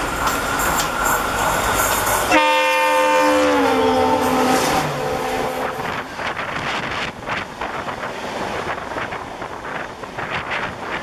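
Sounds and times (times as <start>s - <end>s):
trains rushing and clattering: 0.0s - 11.0s
locomotive horn: 2.3s - 6.1s.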